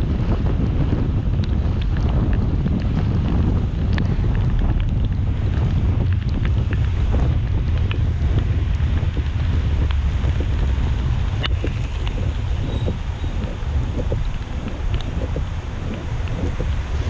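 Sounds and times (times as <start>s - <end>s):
road and wind noise: 0.0s - 17.0s.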